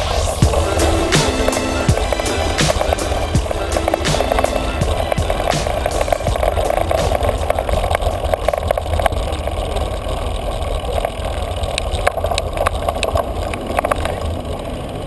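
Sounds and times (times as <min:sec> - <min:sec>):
bicycle rattling over cobblestones: 0:04.9 - 0:15.0.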